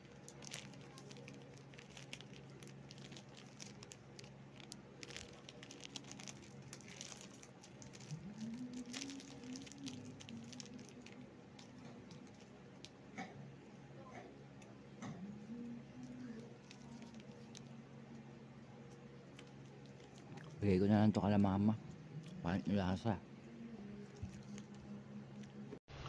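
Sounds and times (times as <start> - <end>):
plastic wrapper crinkling: 0.0 - 13.0, 15.9 - 17.8, 18.9 - 20.7, 24.0 - 25.6
low hum: 0.0 - 26.0.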